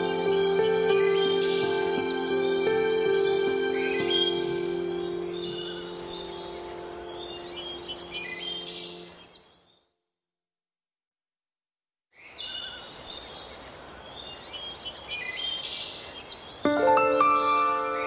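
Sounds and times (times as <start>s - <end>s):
held ambient music tones: 0.0s - 9.2s, 16.7s - 18.0s
birdsong chirps: 0.0s - 10.0s, 12.2s - 18.0s
soft nature ambience: 0.0s - 10.0s, 12.2s - 18.0s.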